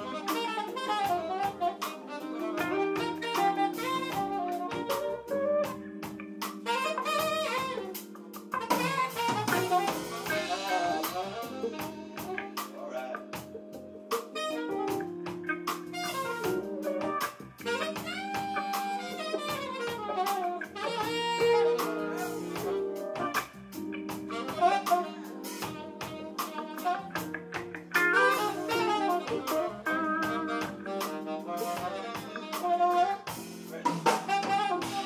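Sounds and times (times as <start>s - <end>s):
drum kit: 0.0s - 35.0s
held band chords: 0.0s - 35.0s
saxophone solo: 0.0s - 35.0s
electric bass: 7.2s - 14.0s.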